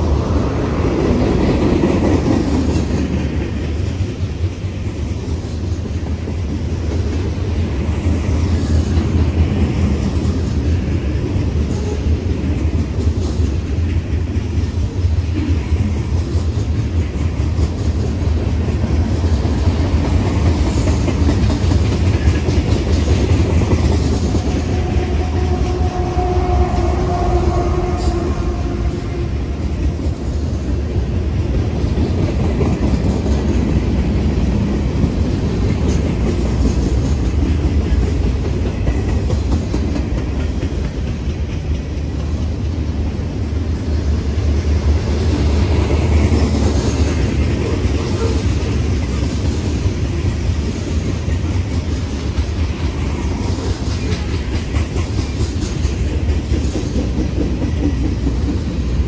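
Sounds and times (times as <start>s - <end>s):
freight train rumbling past: 0.0s - 59.0s
wheels clacking over rails: 0.0s - 59.0s.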